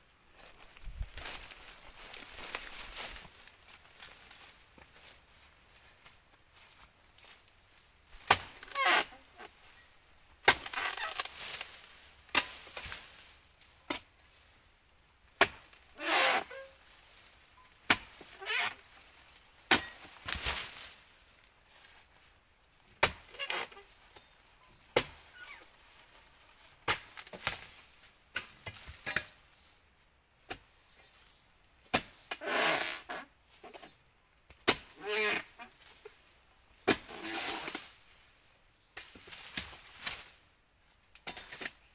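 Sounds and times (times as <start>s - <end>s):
insects buzzing: 0.0s - 41.9s
fronds rustling: 0.1s - 14.7s, 15.5s - 29.9s, 34.7s - 41.9s
blade chopping palm fronds: 8.2s - 9.1s, 10.4s - 13.2s, 15.4s - 16.7s, 17.9s - 18.8s, 19.7s - 21.0s, 23.0s - 23.8s, 34.6s - 35.5s, 36.8s - 38.0s.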